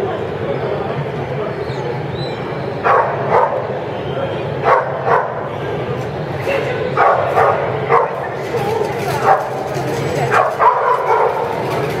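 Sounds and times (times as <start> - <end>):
crowd murmuring: 0.0 - 12.0
dog barking: 2.8 - 3.7, 4.6 - 5.5, 7.0 - 8.2, 9.2 - 9.7, 10.3 - 11.8.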